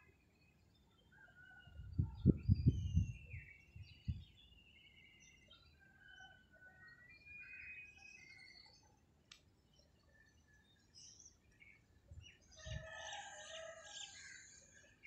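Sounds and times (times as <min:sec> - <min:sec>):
birds chirping and whistling: 0:01.9 - 0:05.6, 0:07.1 - 0:08.8.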